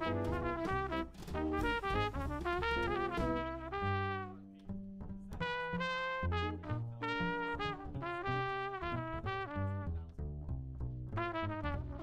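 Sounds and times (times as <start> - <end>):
drums: 0.0 - 3.8
jazz trumpet: 0.0 - 4.7, 5.3 - 10.0, 11.1 - 12.0
upright bass: 0.0 - 12.0.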